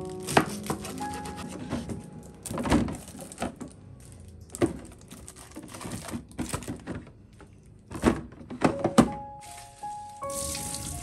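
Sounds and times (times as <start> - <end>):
plastic drawers clicking and knocking: 0.2 - 3.8, 4.5 - 7.2, 7.9 - 9.3.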